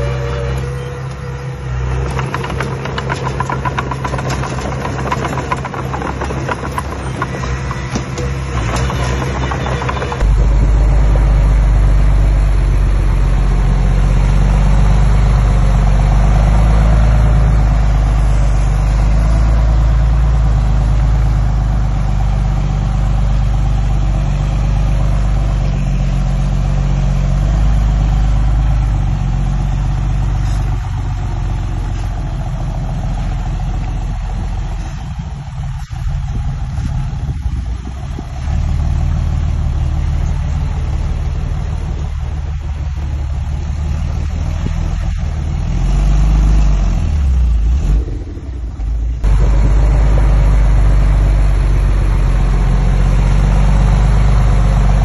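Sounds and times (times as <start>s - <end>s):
diesel machinery engine rumbling: 0.0s - 55.0s.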